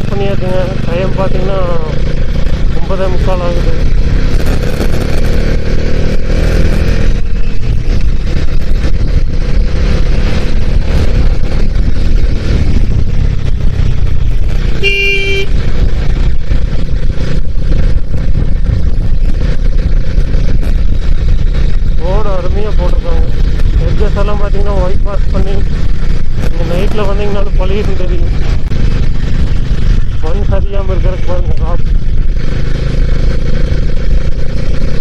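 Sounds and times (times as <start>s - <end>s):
motorcycle running: 0.0s - 35.0s
wind rushing over microphone: 1.5s - 35.0s
vehicle horn honk: 14.8s - 15.6s.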